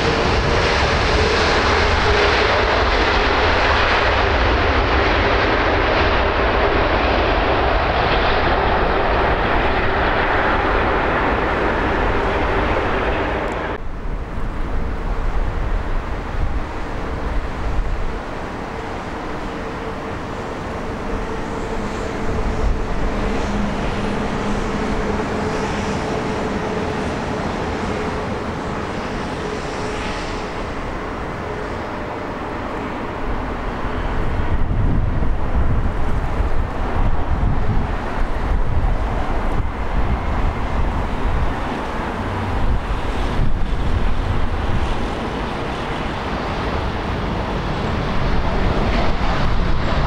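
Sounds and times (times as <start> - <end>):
jet engines droning: 0.0 - 50.0
jet engines running: 0.0 - 50.0.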